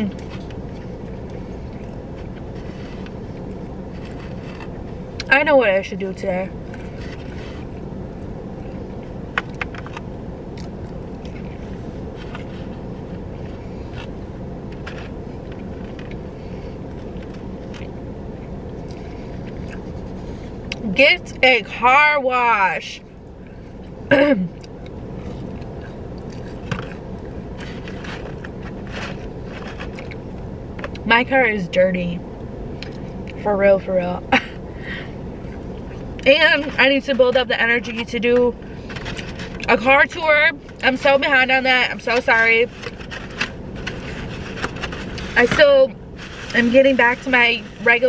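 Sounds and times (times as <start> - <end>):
handling and eating noises: 0.0 - 5.4, 6.5 - 20.8, 23.3 - 31.1, 34.3 - 48.0
car engine idling: 0.0 - 48.0
low background hum: 0.0 - 48.0
chewing: 18.8 - 20.1, 24.6 - 30.2
plastic containers clicking and scraping: 27.6 - 30.2, 36.3 - 41.4, 42.0 - 47.9.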